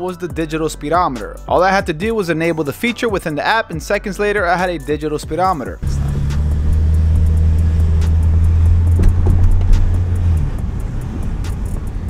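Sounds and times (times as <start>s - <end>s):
car engine drone from cabin: 5.8s - 12.0s
gearbox shifting up: 5.8s - 12.0s.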